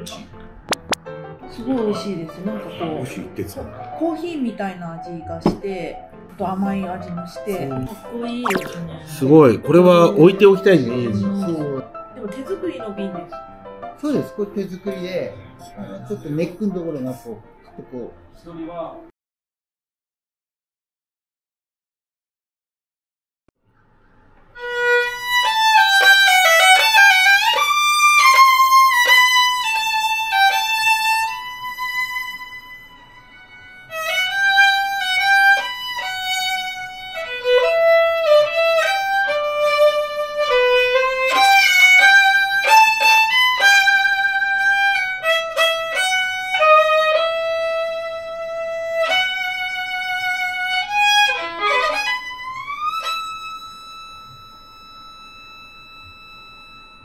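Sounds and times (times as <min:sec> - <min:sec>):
solo violin melody: 0:24.6 - 0:56.8.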